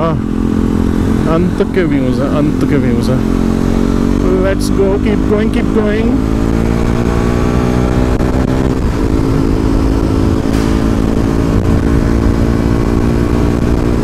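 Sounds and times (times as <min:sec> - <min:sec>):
motorcycle engine accelerating: 0:00.0 - 0:14.0
wind rumble on microphone: 0:06.5 - 0:14.0.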